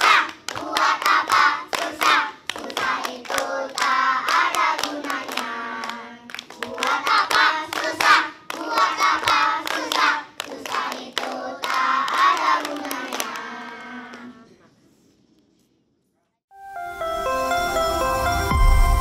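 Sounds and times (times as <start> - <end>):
hands clapping: 0.0 - 14.3
children singing together: 0.0 - 14.5.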